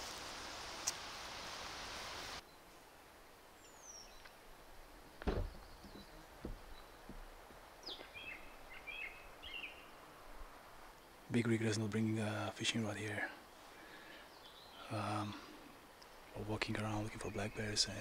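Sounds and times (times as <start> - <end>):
steady hiss: 0.0 - 18.0
birds chirping: 2.4 - 18.0
thump: 5.2 - 7.2.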